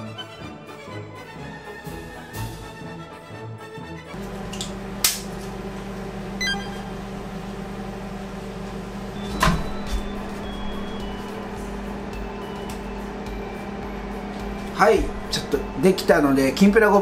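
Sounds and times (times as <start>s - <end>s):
low electrical hum: 4.2s - 17.0s
high beeps: 6.4s - 6.9s
microwave door clunk: 9.2s - 11.0s.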